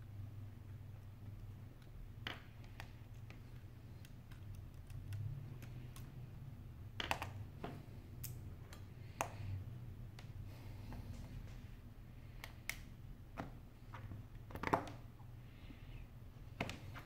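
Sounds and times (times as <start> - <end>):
low steady hum: 0.0 - 17.0
fingers clicking and tapping phone parts: 1.2 - 9.5, 12.3 - 15.1.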